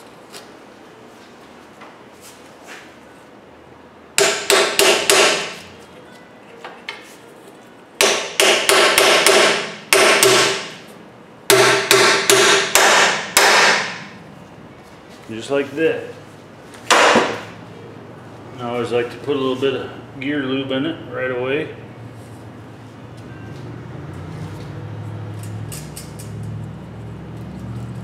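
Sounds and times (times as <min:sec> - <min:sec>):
hammer striking metal: 0:04.2 - 0:05.6, 0:08.0 - 0:10.8, 0:11.5 - 0:14.1, 0:16.9 - 0:17.5.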